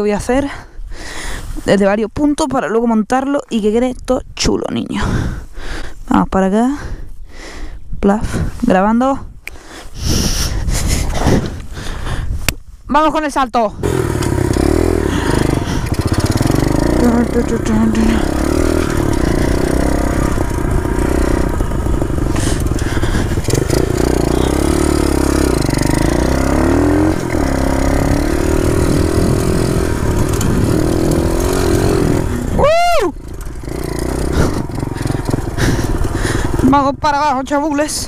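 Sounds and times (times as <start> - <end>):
wind rumble on microphone: 6.8 - 12.9, 18.2 - 24.3, 27.2 - 36.7
pit bike engine revving: 13.8 - 38.0.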